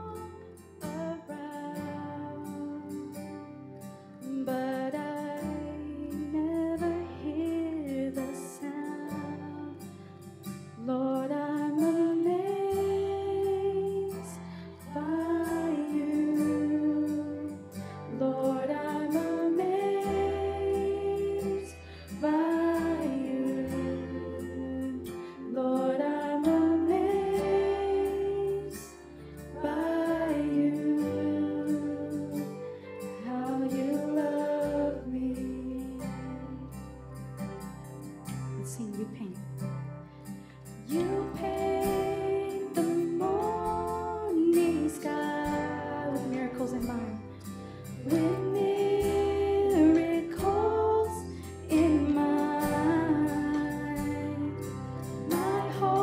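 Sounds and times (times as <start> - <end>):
woman singing lead: 0.0 - 37.0, 38.3 - 39.7, 40.3 - 56.0
acoustic guitar: 0.0 - 56.0.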